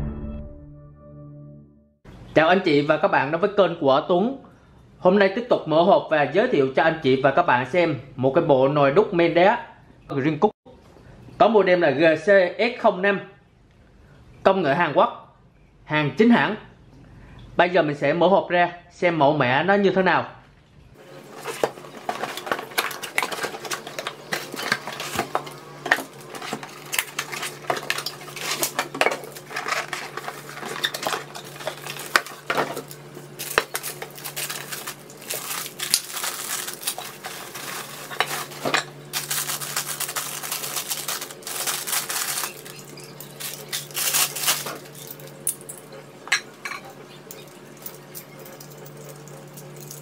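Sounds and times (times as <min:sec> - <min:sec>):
plastic wrapping crinkling: 0:21.1 - 0:45.7
pot lids and pots clinking: 0:21.3 - 0:39.5.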